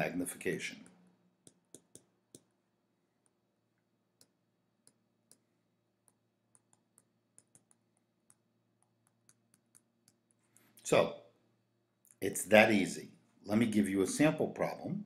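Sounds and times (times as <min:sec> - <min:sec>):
stylus tapping touchscreen: 0:00.7 - 0:10.8.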